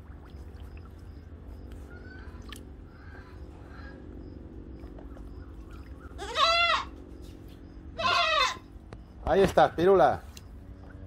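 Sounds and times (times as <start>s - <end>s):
faint water splashes: 0.0s - 3.4s
low steady hum: 0.0s - 11.0s
goat bleating: 6.2s - 7.0s, 7.9s - 8.7s.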